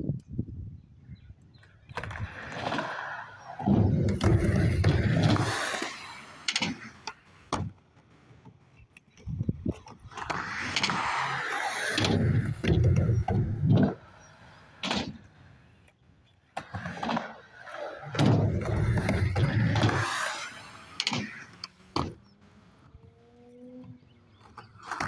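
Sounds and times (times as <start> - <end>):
skateboard wheels rolling: 1.5 - 25.0
skateboard clacking: 1.9 - 7.8, 9.7 - 15.4, 16.5 - 22.2.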